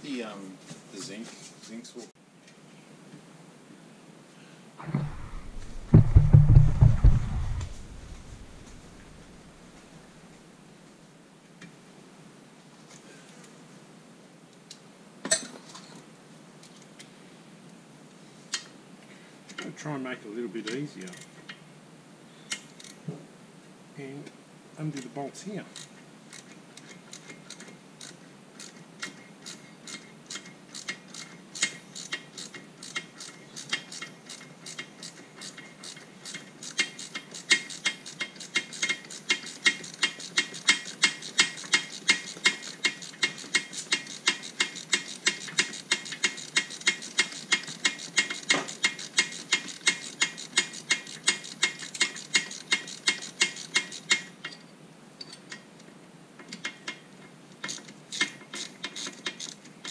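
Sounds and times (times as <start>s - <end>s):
ratchet spanner clicking: 22.5s - 23.0s, 25.8s - 54.6s, 57.6s - 59.9s.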